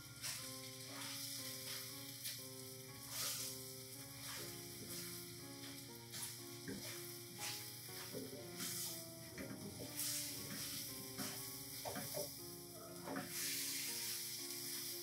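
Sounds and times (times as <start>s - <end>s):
noodles sizzling in a pan: 0.0s - 15.0s
metal tongs tossing food: 0.2s - 2.4s, 3.0s - 3.6s, 4.2s - 12.4s.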